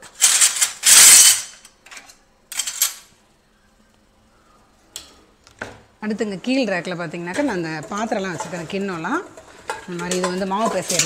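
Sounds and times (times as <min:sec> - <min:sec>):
metal utensils clattering: 0:00.0 - 0:03.1, 0:07.3 - 0:11.0.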